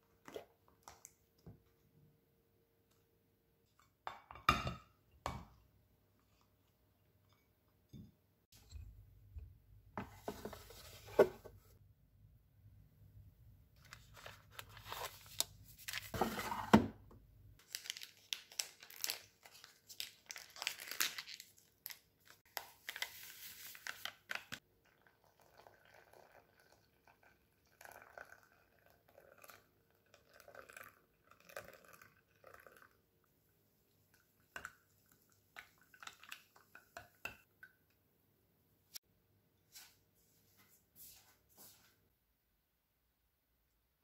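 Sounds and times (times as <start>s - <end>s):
sachet tearing: 17.6s - 22.0s
plastic packets crinkling: 17.6s - 24.6s
water pouring into mug: 24.8s - 33.0s.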